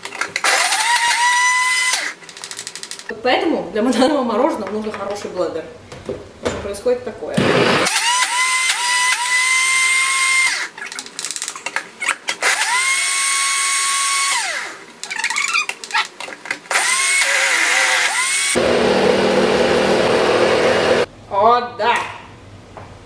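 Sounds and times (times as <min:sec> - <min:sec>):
blender motor whining: 0:00.4 - 0:02.2, 0:07.4 - 0:10.7, 0:12.4 - 0:14.8, 0:16.7 - 0:21.1.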